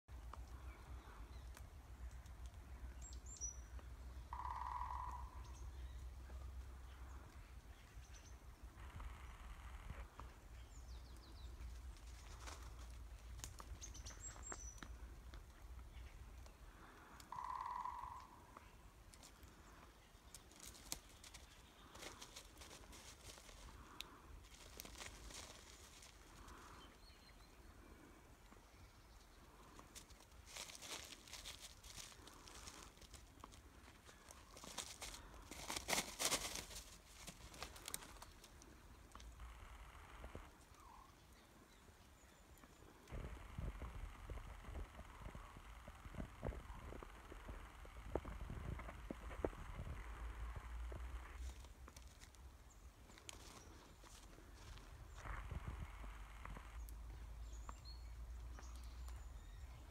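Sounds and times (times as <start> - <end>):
woodpecker drumming: 0.3 - 7.5, 8.6 - 41.6, 42.4 - 59.6
footsteps on twigs and snow: 11.5 - 16.6, 18.6 - 26.8, 29.4 - 41.0, 43.1 - 59.6
low rumble: 43.1 - 51.6.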